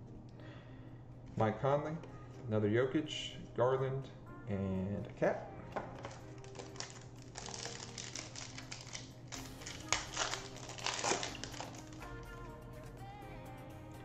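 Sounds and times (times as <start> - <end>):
plastic wrapper crinkling: 5.8 - 12.2.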